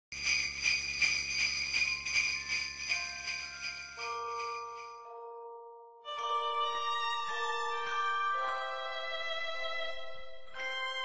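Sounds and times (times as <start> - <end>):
sleigh bells shaken: 0.1 - 5.0
music: 0.1 - 11.0.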